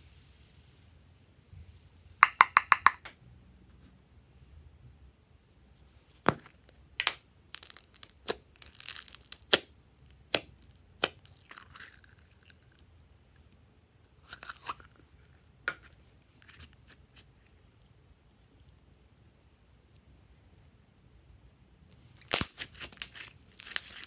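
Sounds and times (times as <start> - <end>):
plastic cup clicks and snaps: 2.2 - 3.2
slime crackling and tearing: 7.5 - 12.9, 22.2 - 24.0.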